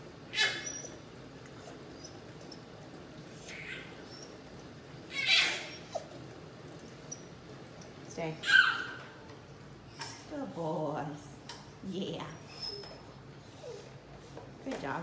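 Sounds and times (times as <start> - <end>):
dog whining: 0.3 - 7.5, 8.4 - 9.2, 12.2 - 14.0.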